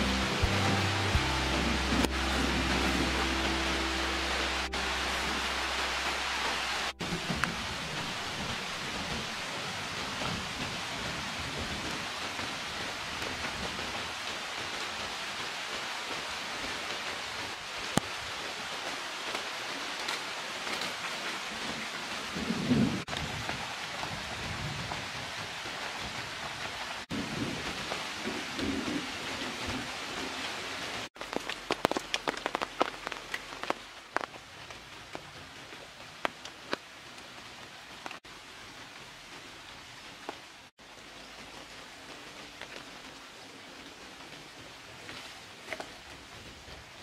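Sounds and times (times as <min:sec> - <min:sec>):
rain drops ticking: 0:00.0 - 0:47.0
steady rain: 0:00.0 - 0:47.0
low rolls of thunder: 0:27.1 - 0:30.4.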